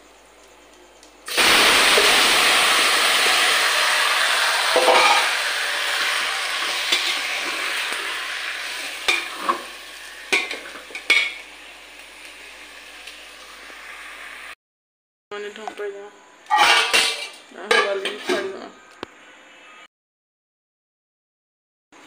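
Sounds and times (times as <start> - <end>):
curry sizzling in a pot: 1.3 - 14.6
spatula scraping and knocking pot: 4.8 - 5.3, 9.0 - 9.6.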